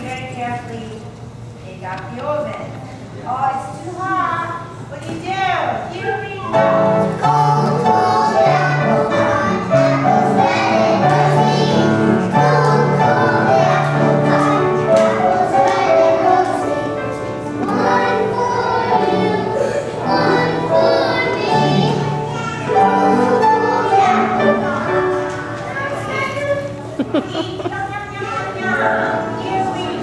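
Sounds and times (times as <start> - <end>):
children singing in unison: 7.0 - 25.4.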